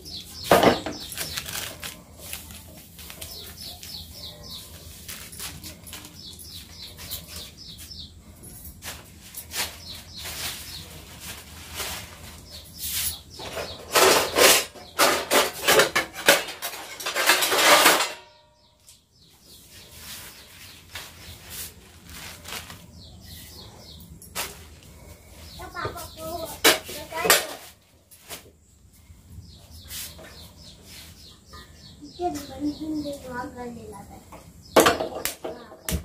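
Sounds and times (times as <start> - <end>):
steel dishes clattering: 13.4 - 18.5.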